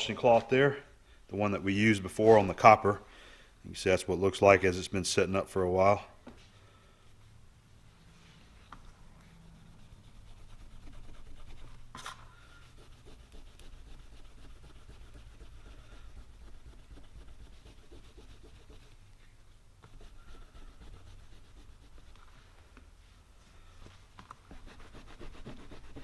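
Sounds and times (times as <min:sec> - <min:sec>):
cloth rubbing on brass: 0:09.2 - 0:19.1, 0:19.9 - 0:23.3, 0:24.5 - 0:26.0.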